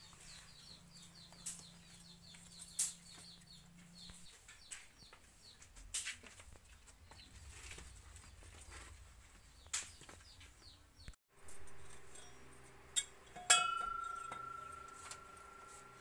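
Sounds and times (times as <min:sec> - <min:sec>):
birds chirping: 0:00.0 - 0:05.9, 0:06.8 - 0:11.2
metal pot clanking and ringing: 0:11.9 - 0:16.0.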